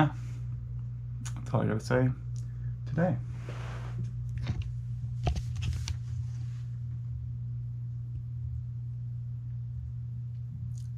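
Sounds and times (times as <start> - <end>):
steady low hum: 0.0 - 10.9.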